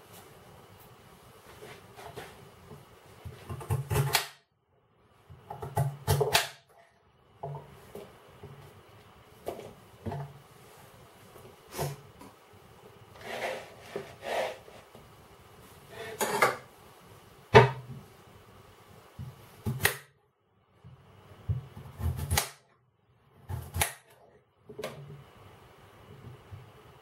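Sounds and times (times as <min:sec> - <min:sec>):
knife slicing scrapes: 0:13.2 - 0:14.8.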